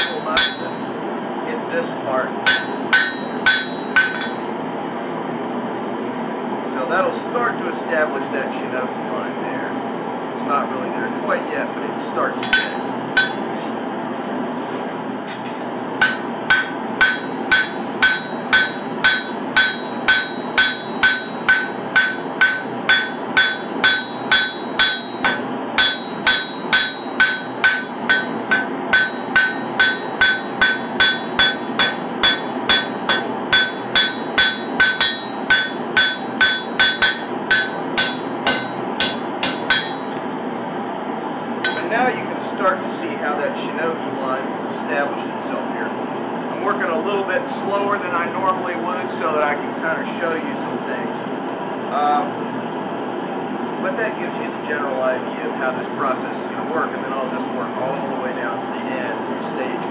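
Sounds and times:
hammer ringing on anvil: 0.0 - 1.2, 2.4 - 4.6, 12.4 - 13.6, 16.0 - 40.2, 41.6 - 42.0.

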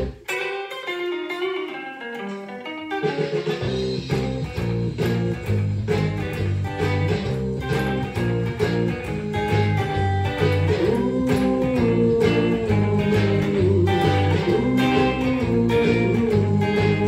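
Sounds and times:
bass line with steady beat: 0.0 - 0.2, 3.6 - 17.0
electric guitar single notes with delay: 0.0 - 17.0.

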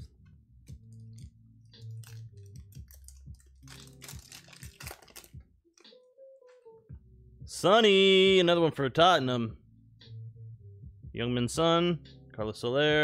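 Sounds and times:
foil card pack tearing: 1.8 - 5.4
foil wrapper crinkling: 1.8 - 5.4.

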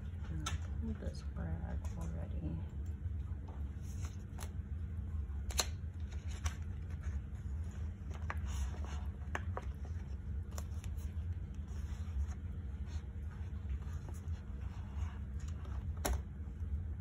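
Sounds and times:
low hum: 0.0 - 17.0
paper clicks and rustles: 5.4 - 16.2.

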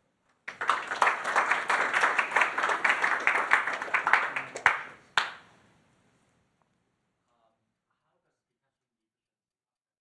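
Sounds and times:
audience applauding: 0.5 - 5.4.

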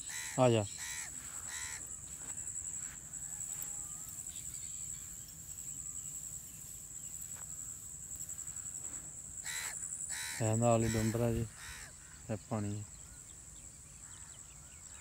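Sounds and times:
crow cawing: 0.0 - 2.0, 9.4 - 12.3
crickets chirring: 0.0 - 15.0.

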